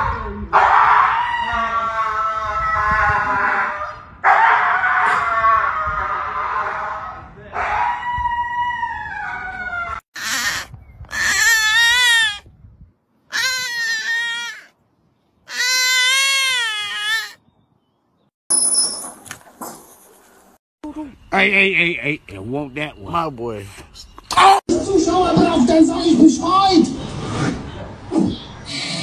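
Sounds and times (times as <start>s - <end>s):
husky howling: 0.6s - 10.6s.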